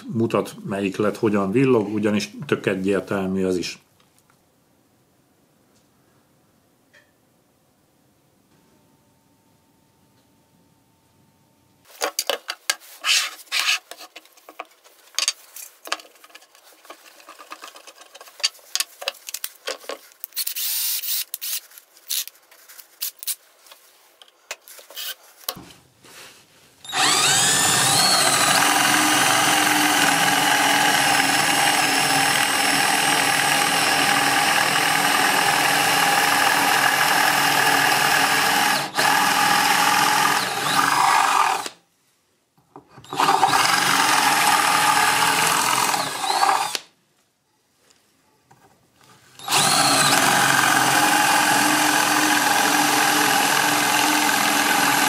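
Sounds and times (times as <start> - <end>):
cordless drill whining: 20.4 - 22.3, 24.9 - 25.2, 26.8 - 41.8, 43.0 - 46.9, 49.4 - 55.0.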